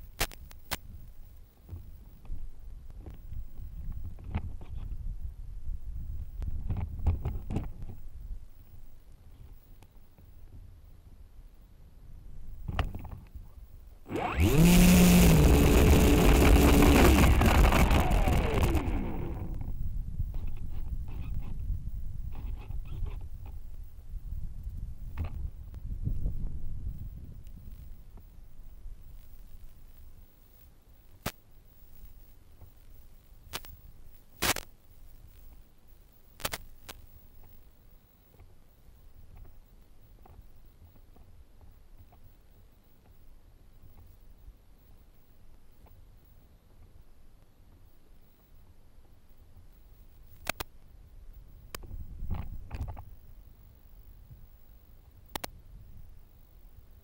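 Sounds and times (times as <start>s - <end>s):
faint low rumble: 0.0s - 57.0s
sharp clicks: 14.1s - 19.7s, 50.3s - 50.7s
quadcopter motors whining: 14.1s - 19.8s.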